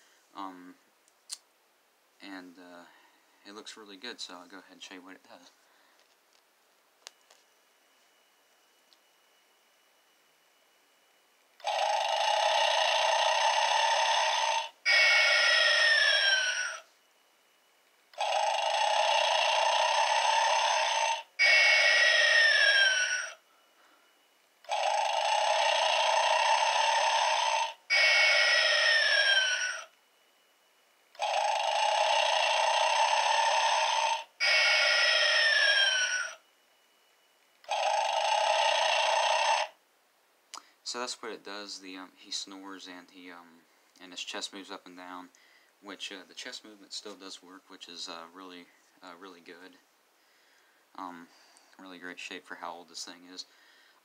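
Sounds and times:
toy snoring through small speaker: 11.6 - 16.9, 18.2 - 23.5, 24.6 - 30.0, 31.1 - 36.4, 37.6 - 39.8.

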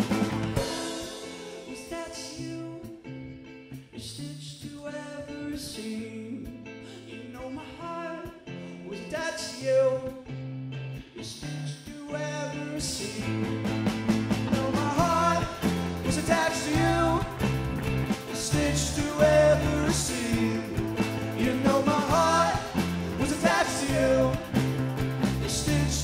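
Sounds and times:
cymbal crashes: 0.0 - 1.9
rock band playing live: 0.0 - 4.0, 4.8 - 26.0.

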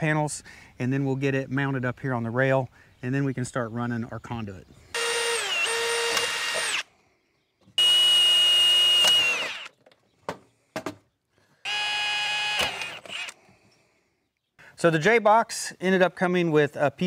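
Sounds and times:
power drill whining: 4.9 - 6.9, 7.8 - 9.8, 11.6 - 13.4.

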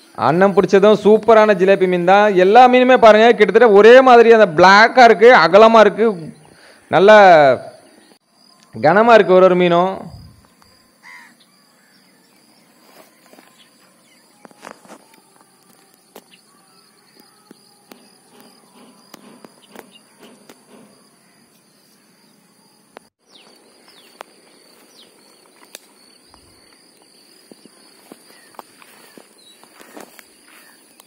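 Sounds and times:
high-pitched insect drone: 9.8 - 31.0.

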